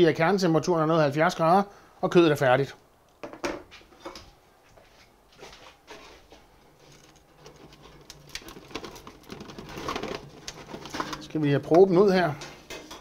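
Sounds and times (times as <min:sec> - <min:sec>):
foil tray rustling: 0:06.0 - 0:13.0.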